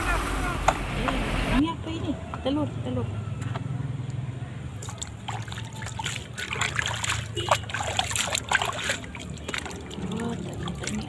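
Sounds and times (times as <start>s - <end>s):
hands splashing in water: 4.8s - 11.0s.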